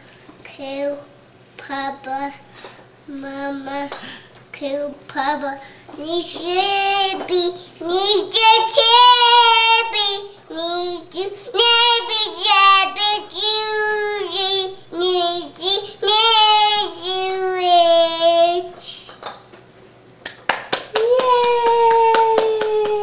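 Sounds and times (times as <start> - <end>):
girl singing: 0.6 - 2.5, 3.1 - 19.1.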